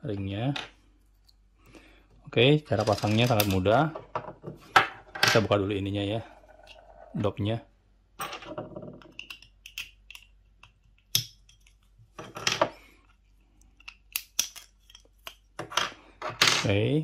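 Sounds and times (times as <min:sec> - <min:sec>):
plastic parts clicking and knocking: 0:08.2 - 0:16.6.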